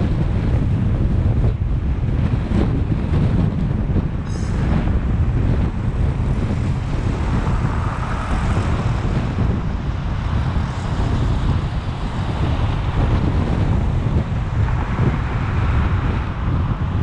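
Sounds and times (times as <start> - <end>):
car driving rumble: 0.0 - 17.0
road noise: 0.0 - 17.0
wind buffeting microphone: 0.0 - 17.0.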